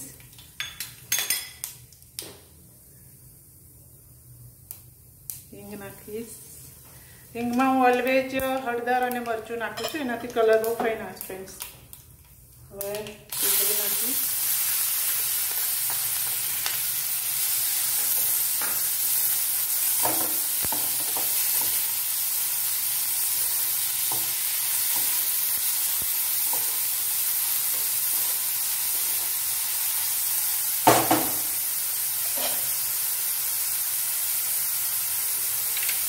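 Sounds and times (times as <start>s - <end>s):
onions sizzling in oil: 12.8s - 36.0s.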